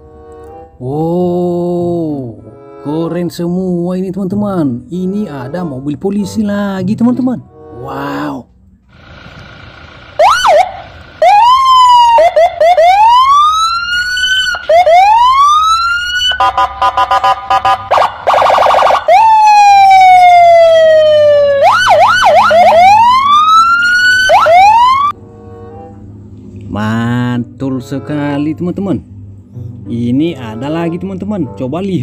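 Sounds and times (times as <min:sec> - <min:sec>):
police car siren: 0:09.0 - 0:25.2.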